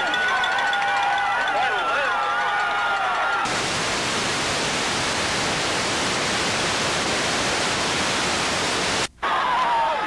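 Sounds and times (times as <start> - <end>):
videotape static hiss: 3.4 - 10.0.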